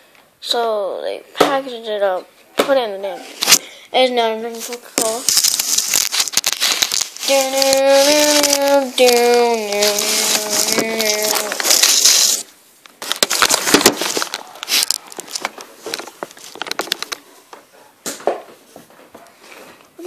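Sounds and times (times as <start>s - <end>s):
packaging crackling and crinkling: 4.6s - 17.3s
packaging tearing: 5.0s - 17.2s.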